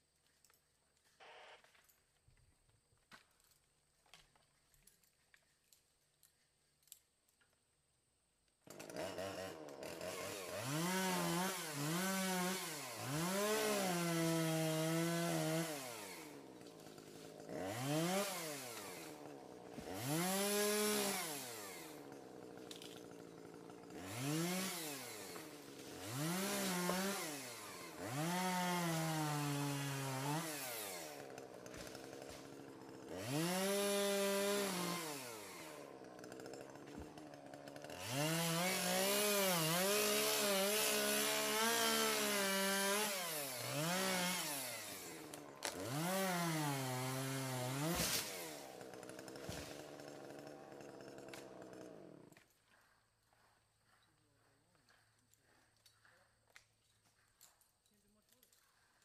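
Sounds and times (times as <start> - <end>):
chainsaw cutting log: 8.6 - 52.7.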